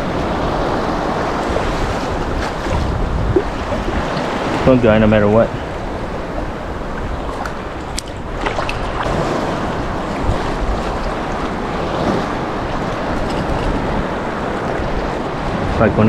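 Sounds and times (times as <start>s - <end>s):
small surf waves washing: 0.0s - 16.0s
wind buffeting microphone: 0.0s - 16.0s.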